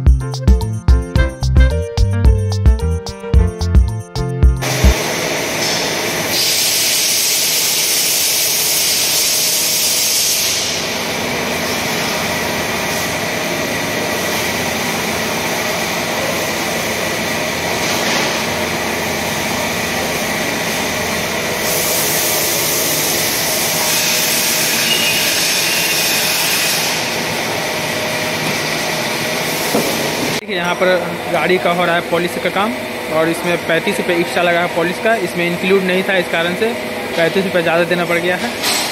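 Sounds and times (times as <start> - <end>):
loud bright hiss: 4.6 - 11.0, 21.6 - 27.3
workshop machinery hiss and whine: 4.6 - 38.9.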